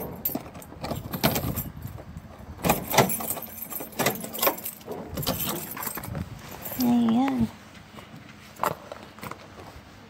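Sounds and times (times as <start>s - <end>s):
keys jangling: 0.0s - 2.0s, 2.6s - 7.1s.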